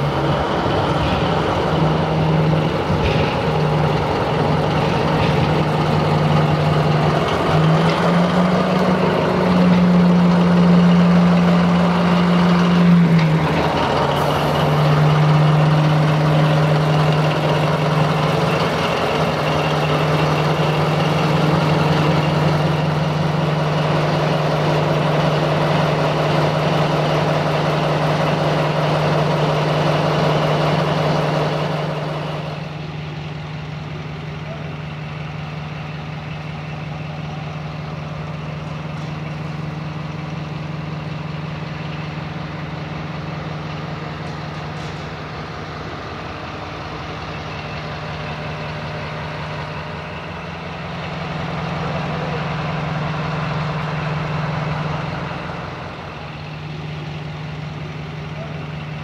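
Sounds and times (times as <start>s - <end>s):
diesel locomotive engine drone: 0.0s - 59.0s.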